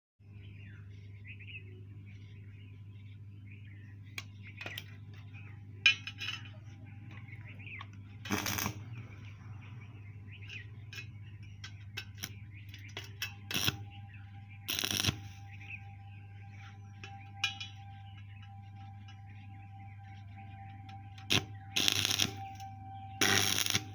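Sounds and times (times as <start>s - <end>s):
steady low hum: 0.2s - 23.9s
welding arc crackle: 8.2s - 8.9s, 13.5s - 13.8s, 14.7s - 15.4s, 21.3s - 22.6s, 23.2s - 23.9s.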